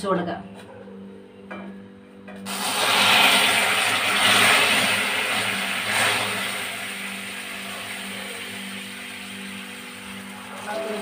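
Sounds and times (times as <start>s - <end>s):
caramel bubbling: 2.5s - 11.0s
water hissing on hot caramel: 2.5s - 11.0s.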